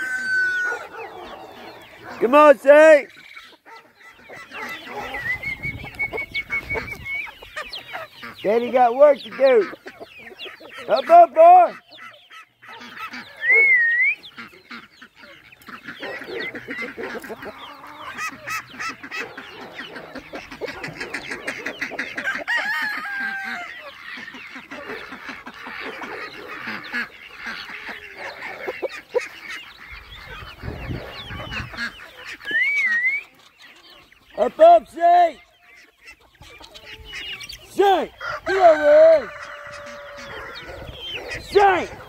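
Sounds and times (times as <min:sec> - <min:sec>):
chickens clucking and squawking: 0:00.0 - 0:42.0
short wavering whistle: 0:13.4 - 0:14.2.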